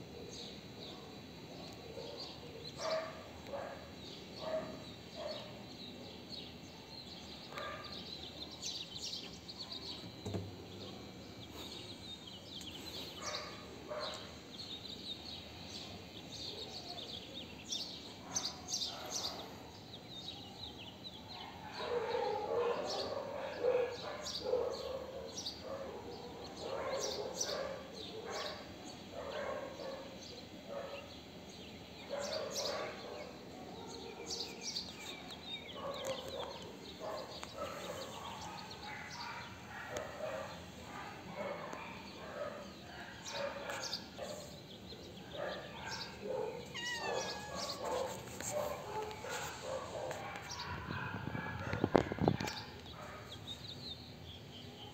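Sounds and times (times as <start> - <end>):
small birds chirping: 0.2 - 54.9
dog barking and yipping: 45.4 - 53.2.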